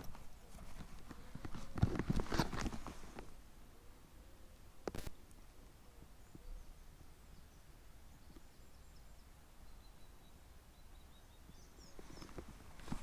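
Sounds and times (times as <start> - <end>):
birds chirping: 5.5 - 13.0
soft footsteps: 12.0 - 13.0.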